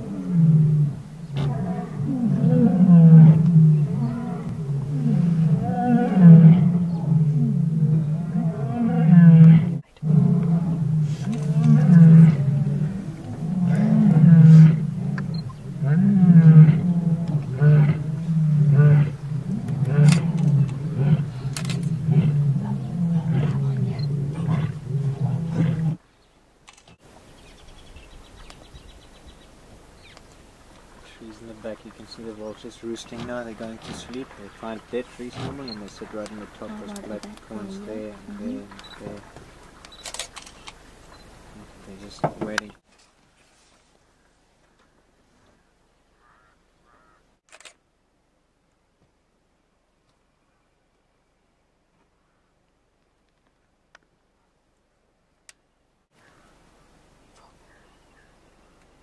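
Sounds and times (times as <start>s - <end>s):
lion roaring: 0.0s - 26.0s, 32.4s - 39.3s.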